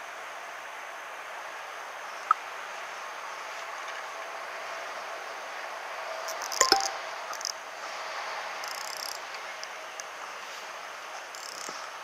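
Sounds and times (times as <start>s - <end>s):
sharp ringing click: 6.6s - 7.0s.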